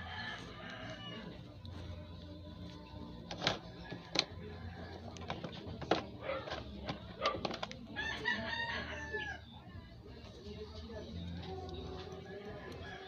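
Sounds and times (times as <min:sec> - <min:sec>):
rooster crowing: 0:00.0 - 0:01.4, 0:08.0 - 0:09.5, 0:12.1 - 0:13.0.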